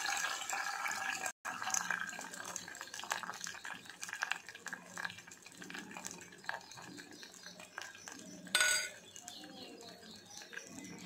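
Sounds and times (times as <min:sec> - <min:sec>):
metal kitchenware clink: 0:08.5 - 0:09.1.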